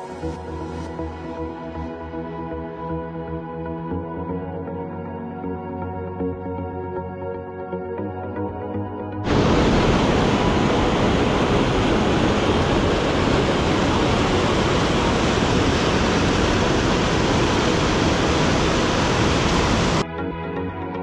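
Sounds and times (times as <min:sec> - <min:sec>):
rushing water: 0:09.3 - 0:20.0.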